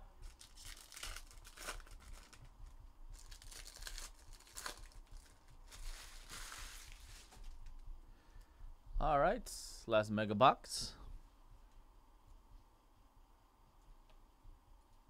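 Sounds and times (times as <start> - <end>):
foil wrappers tearing and crinkling: 0.2 - 7.6.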